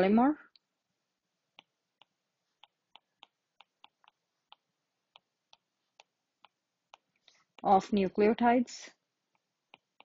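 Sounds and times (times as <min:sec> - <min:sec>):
stylus tapping touchscreen: 0:01.5 - 0:07.8, 0:09.2 - 0:10.0.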